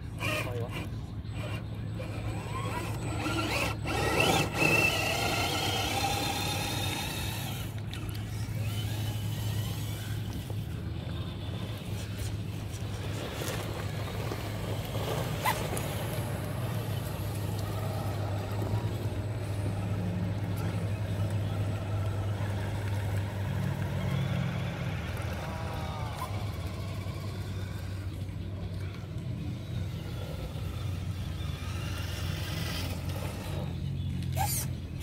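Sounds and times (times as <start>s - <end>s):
toy car motor whining: 0.0s - 11.2s, 29.6s - 35.0s.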